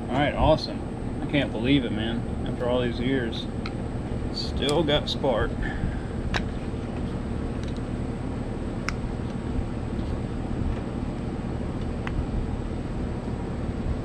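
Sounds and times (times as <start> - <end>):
low background rumble: 0.0 - 14.0.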